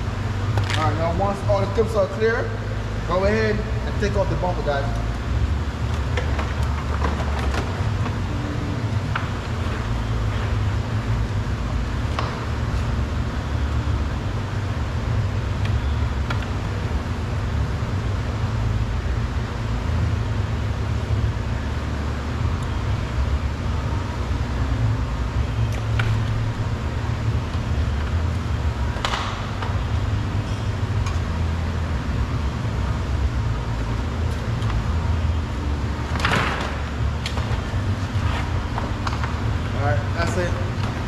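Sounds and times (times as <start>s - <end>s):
workshop low rumble: 0.0s - 41.0s.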